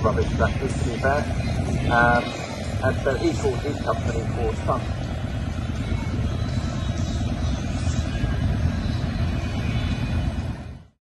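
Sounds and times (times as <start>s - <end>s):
tractor engines running: 0.0s - 11.0s.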